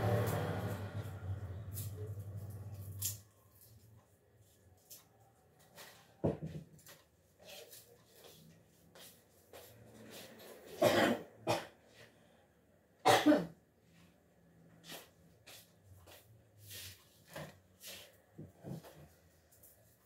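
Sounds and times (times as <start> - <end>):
person coughing: 10.8 - 11.8, 13.0 - 13.6.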